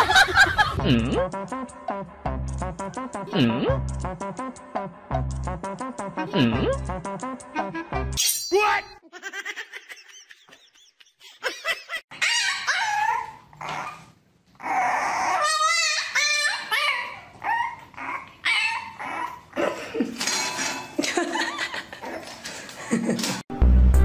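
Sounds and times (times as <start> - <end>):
dog whining and yelping: 12.1 - 19.5.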